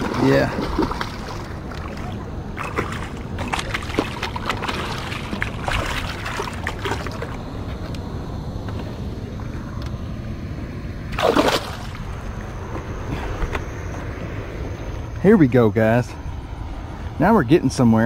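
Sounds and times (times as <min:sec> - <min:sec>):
fish splashing in water: 0:00.0 - 0:07.5, 0:11.1 - 0:12.2.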